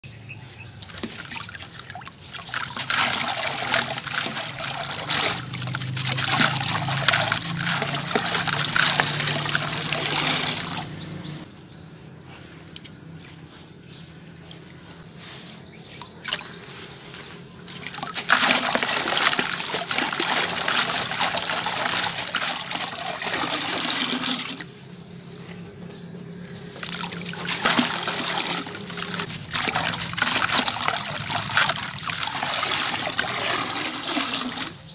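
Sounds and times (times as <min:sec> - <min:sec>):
wet grit pattering into water: 0:00.8 - 0:11.4, 0:17.6 - 0:24.7, 0:26.5 - 0:34.9.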